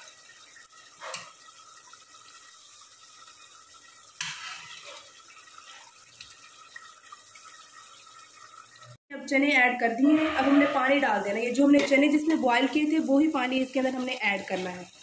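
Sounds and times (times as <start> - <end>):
liquid splashing and dripping: 0.0 - 9.0
gravy simmering: 0.0 - 15.0.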